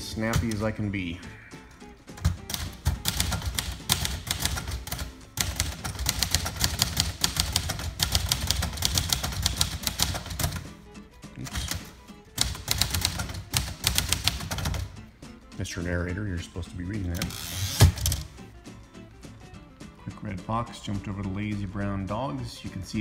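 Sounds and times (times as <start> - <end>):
typewriter typing: 2.2 - 10.7, 11.4 - 15.0, 17.0 - 18.4.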